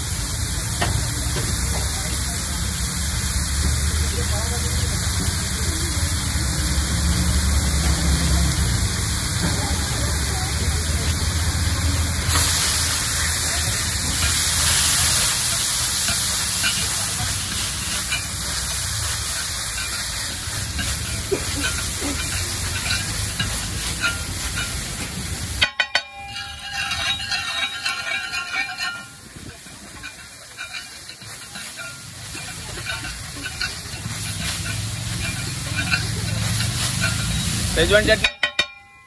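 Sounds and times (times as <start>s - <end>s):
eggs sizzling in a pan: 0.0s - 38.4s
metallic clinks: 13.5s - 39.0s.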